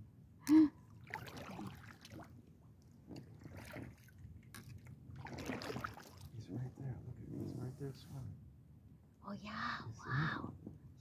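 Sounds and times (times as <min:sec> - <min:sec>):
kayak paddle dipping and dripping: 0:00.9 - 0:06.4.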